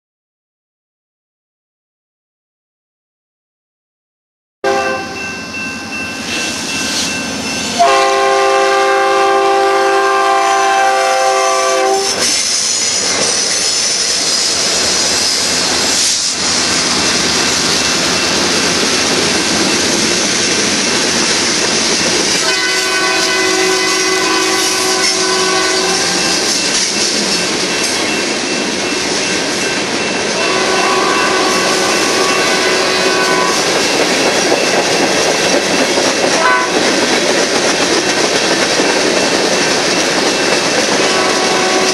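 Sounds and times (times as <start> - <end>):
locomotive air horn: 4.6 - 5.2, 7.7 - 13.0, 22.4 - 26.5, 30.4 - 33.7, 36.3 - 36.9, 41.0 - 41.9
train wheels on rails: 5.2 - 41.9.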